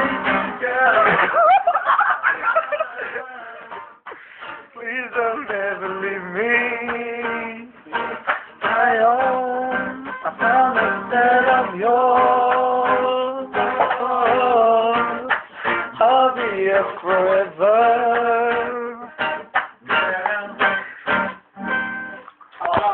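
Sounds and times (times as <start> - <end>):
strummed acoustic string instrument: 0.0 - 1.4, 2.3 - 22.9
man singing: 0.0 - 1.6, 2.7 - 3.8, 4.7 - 19.2, 19.8 - 21.0.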